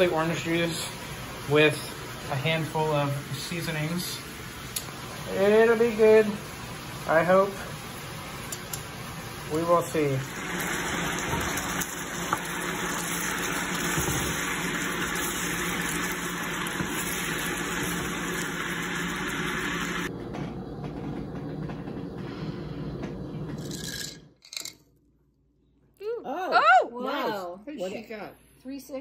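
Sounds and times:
sauce sizzling and bubbling: 0.0 - 20.1.

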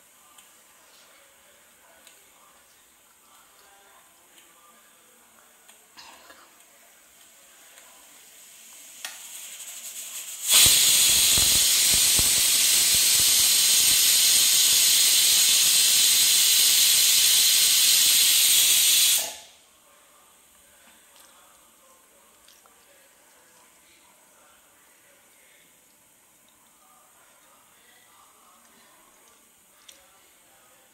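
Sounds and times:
pressure cooker steam hissing: 8.4 - 19.5.

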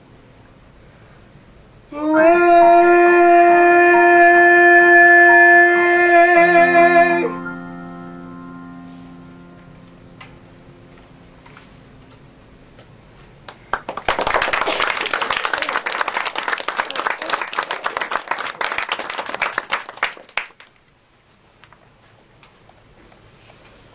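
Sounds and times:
electric keyboard chord: 4.0 - 12.8
audience applauding: 13.5 - 20.8.

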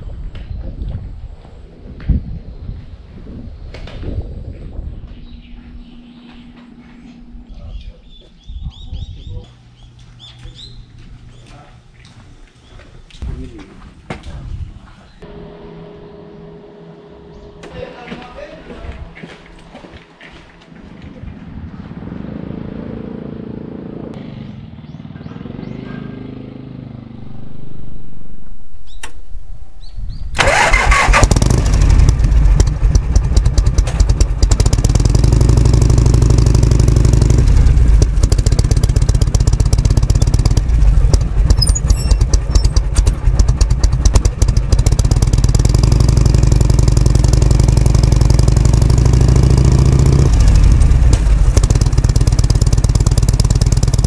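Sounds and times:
motorcycle engine starting and idling: 24.2 - 54.0.

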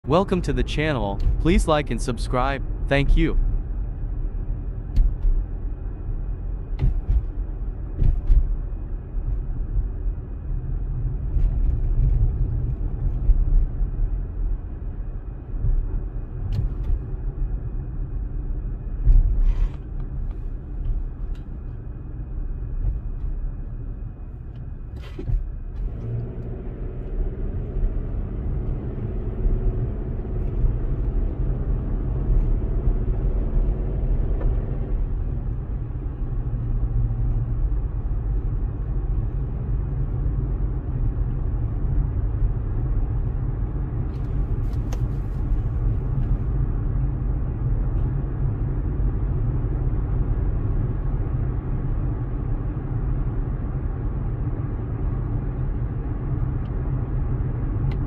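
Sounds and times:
car engine and road noise: 0.0 - 58.0
humming engine note: 11.3 - 51.7.

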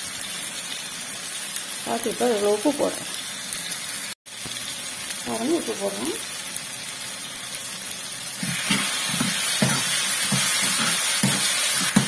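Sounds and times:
vegetables sizzling in a frying pan: 0.0 - 12.0
metal spoon scraping a pan: 8.4 - 12.0.

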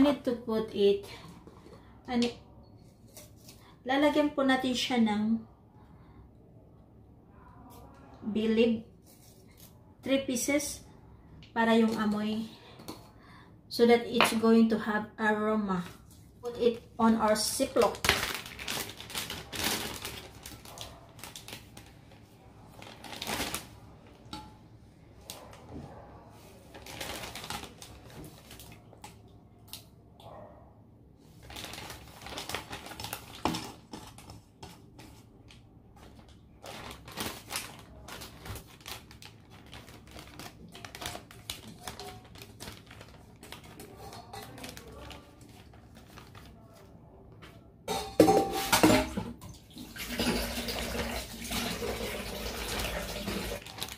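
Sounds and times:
plastic bag rustling and crinkling: 15.7 - 24.4, 25.4 - 29.2, 31.2 - 47.0, 49.9 - 53.9.

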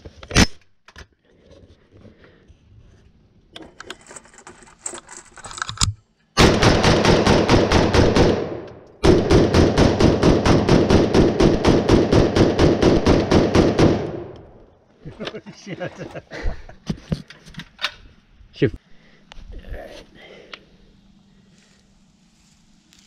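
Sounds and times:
rifle firing rapidly: 6.4 - 14.4.

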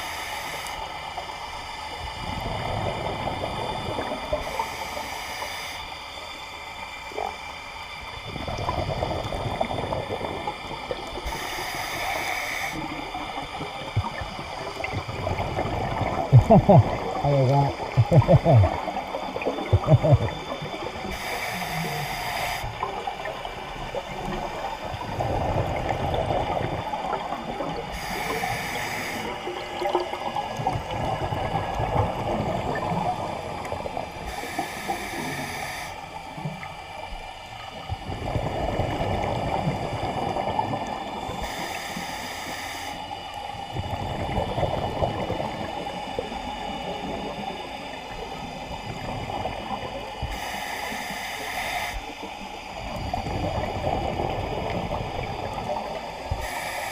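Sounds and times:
regulator inhale hiss: 0.0 - 1.0, 4.3 - 6.9, 11.2 - 13.5, 21.0 - 23.4, 27.8 - 29.7, 34.2 - 36.6, 41.4 - 43.7, 49.7 - 53.0, 55.2 - 56.9
gurgling exhaled bubbles: 2.0 - 5.0, 8.1 - 12.2, 12.8 - 35.6, 36.2 - 41.6, 43.7 - 50.4, 52.1 - 56.9.

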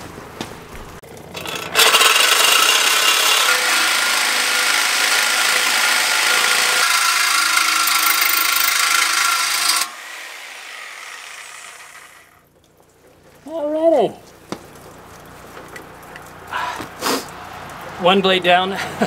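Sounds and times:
reciprocating saw cutting metal: 1.3 - 12.4.

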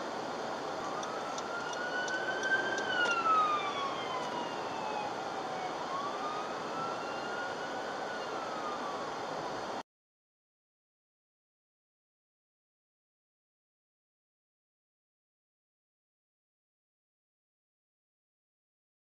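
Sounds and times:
emergency vehicle siren wailing: 0.0 - 9.8.

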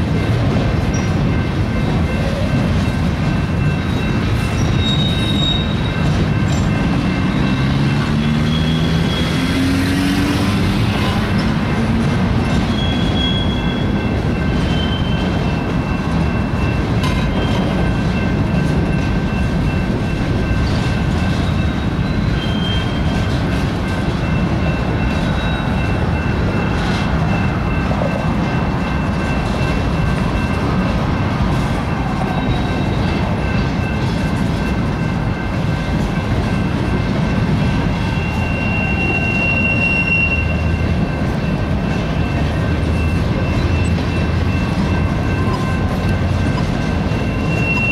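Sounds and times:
steel wheels rumbling on rail: 0.0 - 47.9
high wheel squeals: 3.6 - 17.7, 21.2 - 23.5, 24.2 - 29.4, 31.9 - 34.0, 37.8 - 47.9.

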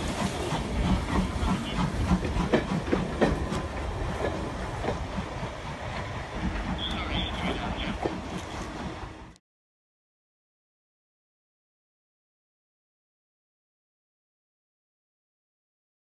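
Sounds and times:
steam hissing: 0.0 - 8.5
wheels clicking over rail joints: 0.0 - 9.0
train rolling past: 0.0 - 9.4.

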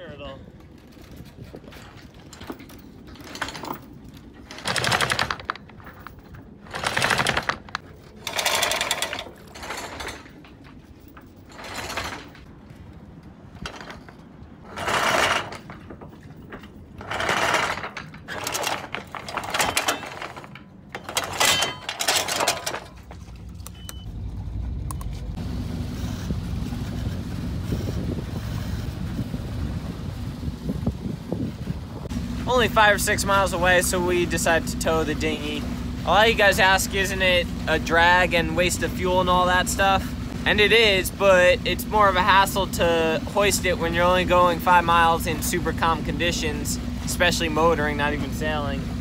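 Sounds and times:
anchor chain rattling over deck: 0.6 - 12.6, 13.4 - 24.1.

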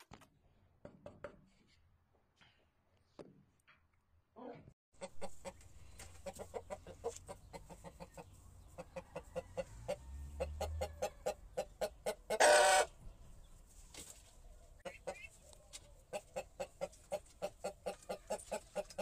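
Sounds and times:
rooster clucking: 5.0 - 13.0, 14.8 - 15.4, 16.0 - 19.0
rooster long loud call: 12.4 - 12.9.

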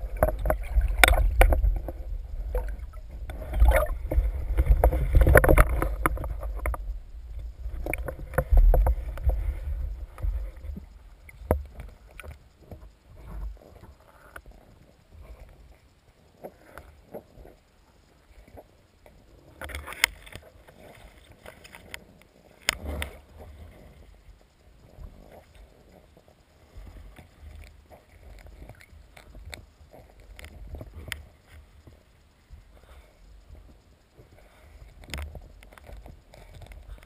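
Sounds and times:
gear clicks and knocks: 0.0 - 14.6, 34.7 - 37.0
underwater water rumble: 0.0 - 37.0.

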